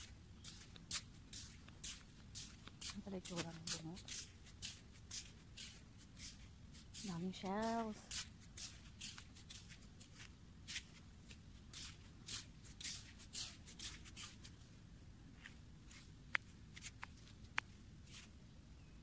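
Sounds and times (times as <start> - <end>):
footsteps crunching on sand: 0.0 - 14.6.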